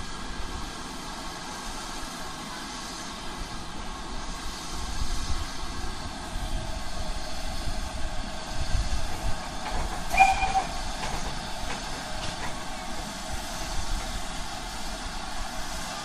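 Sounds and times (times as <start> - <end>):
hiss of steam: 0.0 - 16.0
high squeal: 10.1 - 10.9.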